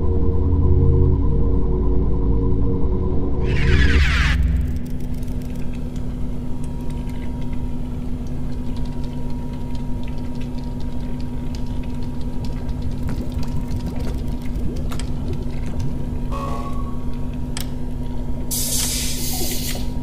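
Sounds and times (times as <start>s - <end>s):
low mechanical hum: 0.0s - 20.0s
crackling clicks: 4.6s - 7.6s.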